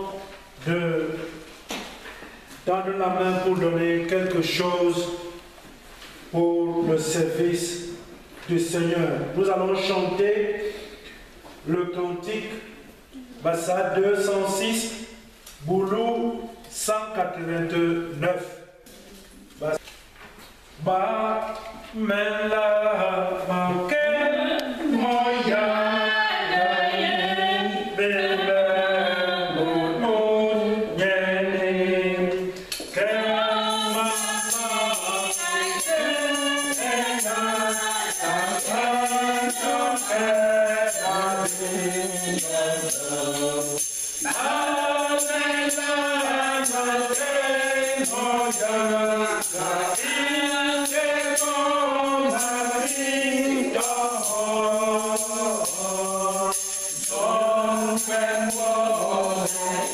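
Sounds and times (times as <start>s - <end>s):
congregation singing a hymn: 0.0s - 1.4s, 20.8s - 59.9s
jingling percussion: 32.9s - 59.9s.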